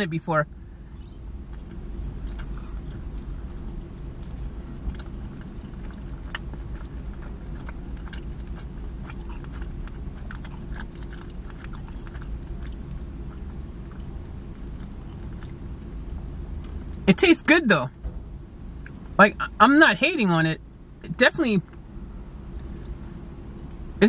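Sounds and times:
steady low hum: 0.0s - 24.0s
wet chewing mouth clicks: 1.0s - 16.4s.

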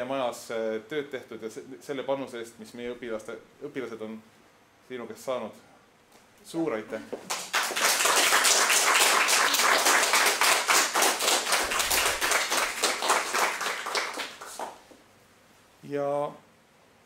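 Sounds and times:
audience applauding: 7.3s - 14.8s.

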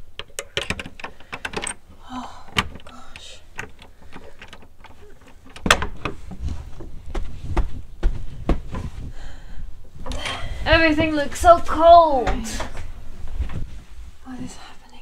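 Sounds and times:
door latch clicking and rattling: 0.0s - 6.4s.

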